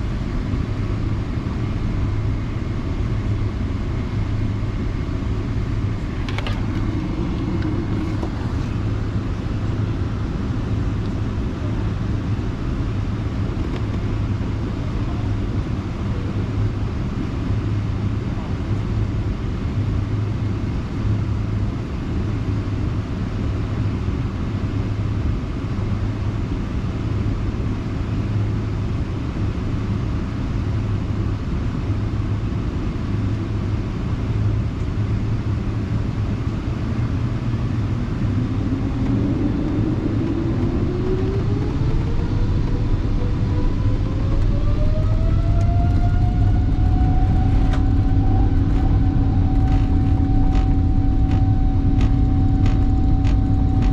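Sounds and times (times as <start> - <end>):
airliner cabin rumble: 0.0 - 53.9
jet engines spooling up: 0.1 - 12.2, 35.4 - 53.9.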